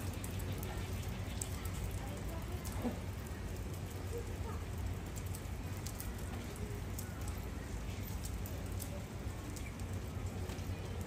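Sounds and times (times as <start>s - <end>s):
faint distant voices: 0.0s - 11.0s
faint clicks: 4.9s - 11.0s.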